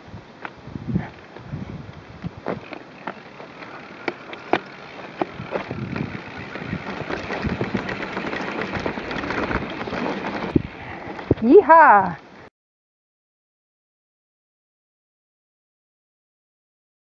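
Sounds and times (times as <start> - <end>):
wheels knocking on rocks: 1.4 - 11.4.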